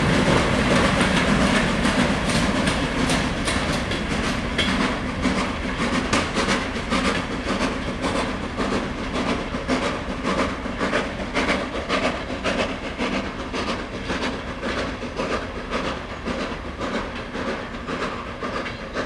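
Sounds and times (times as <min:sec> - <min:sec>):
train wheels clattering over rail joints: 0:00.0 - 0:19.0.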